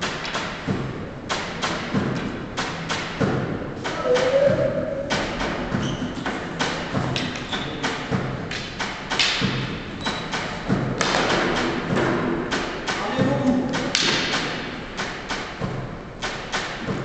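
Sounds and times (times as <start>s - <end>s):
wooden canes clacking: 1.3s - 17.0s
voices calling out: 3.8s - 7.8s.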